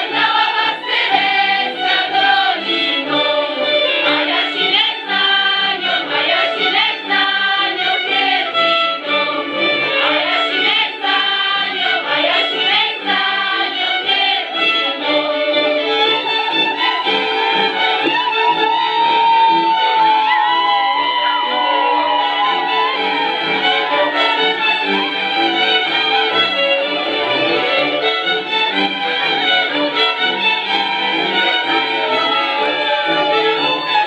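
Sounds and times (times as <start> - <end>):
women singing in chorus: 0.0 - 9.3, 10.0 - 15.5.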